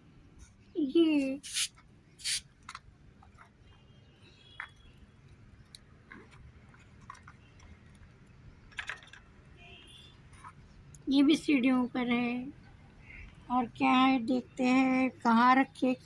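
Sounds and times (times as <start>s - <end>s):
toy truck clicks and taps on metal: 8.7s - 9.3s.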